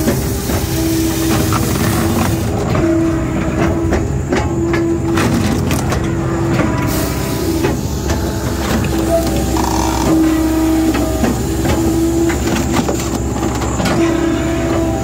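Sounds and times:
firewood processor drone: 7.6s - 13.6s
saw hiss: 9.2s - 12.2s.

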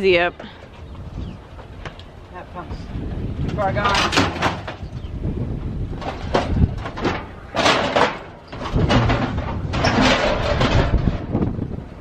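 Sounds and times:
scrap metal clanking and scraping: 3.5s - 4.9s, 5.9s - 11.5s.

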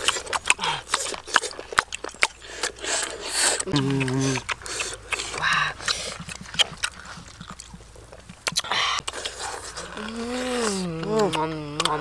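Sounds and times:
mouth clicks and lip smacks: 0.0s - 12.0s
person humming mmm: 3.6s - 5.9s, 9.8s - 12.0s.

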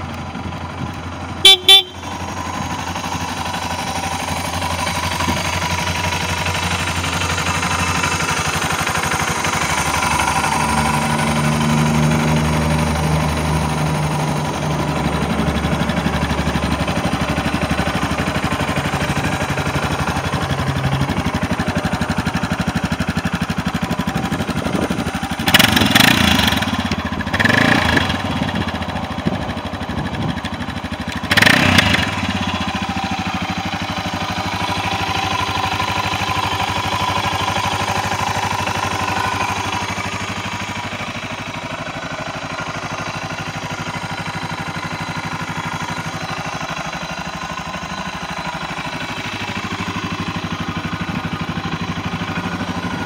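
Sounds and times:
motorcycle engine idling: 0.0s - 53.0s
engine revving: 9.8s - 16.1s, 24.7s - 28.8s, 31.2s - 33.0s.

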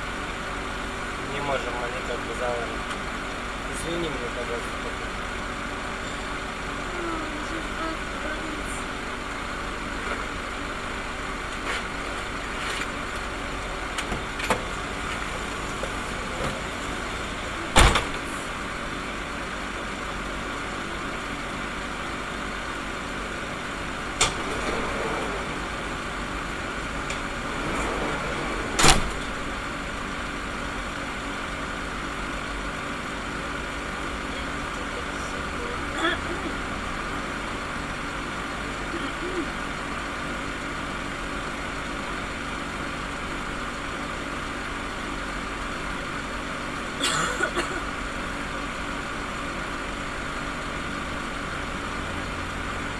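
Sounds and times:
car engine hum from inside cabin: 0.0s - 52.9s.

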